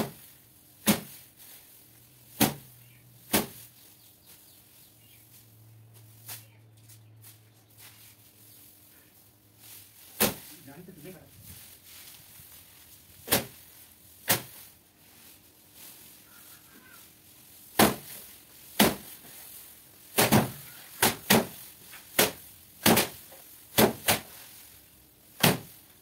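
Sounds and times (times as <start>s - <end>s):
rice stalks whacking a wooden table: 0.8s - 1.6s, 2.3s - 3.7s, 9.9s - 10.8s, 13.2s - 13.6s, 14.2s - 14.8s, 17.6s - 24.6s, 25.3s - 25.8s.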